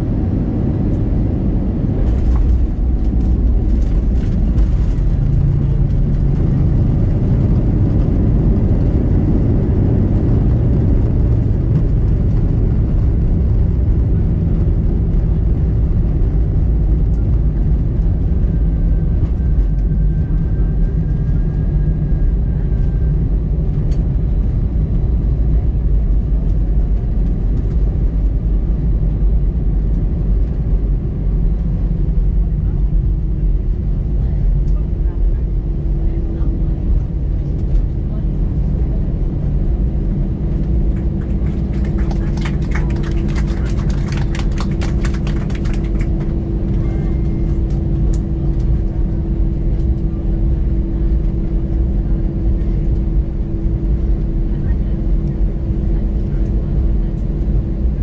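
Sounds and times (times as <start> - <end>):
airplane cabin engine rumble: 0.0 - 58.0.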